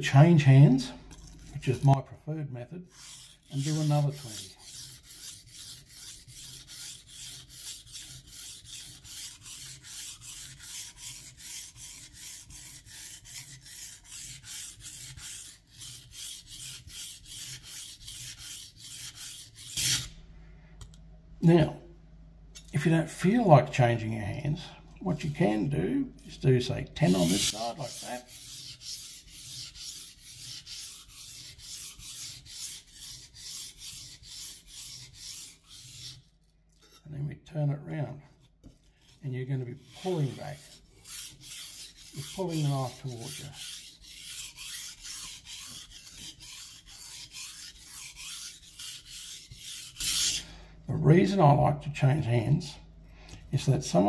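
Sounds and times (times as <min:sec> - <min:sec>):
knife scraping on wet whetstone: 0:01.1 - 0:02.0, 0:02.8 - 0:20.2, 0:25.1 - 0:37.1, 0:38.4 - 0:50.5.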